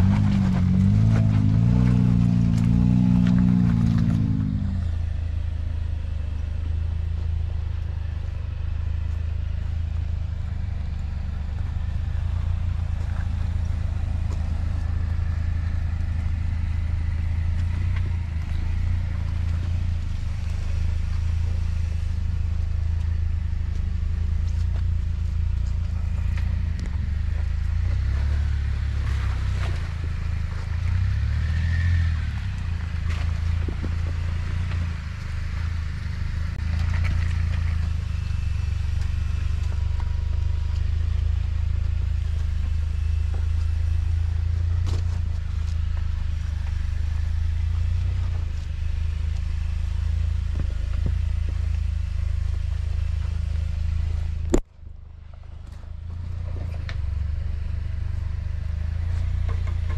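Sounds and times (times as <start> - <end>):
clatter and scrapes: 0.0 - 5.2, 7.2 - 59.9
car engine running: 0.0 - 59.9.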